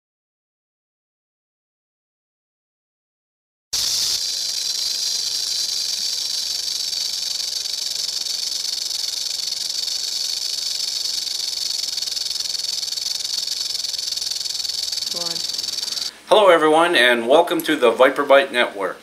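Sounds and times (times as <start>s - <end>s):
snake hissing: 3.8s - 16.2s.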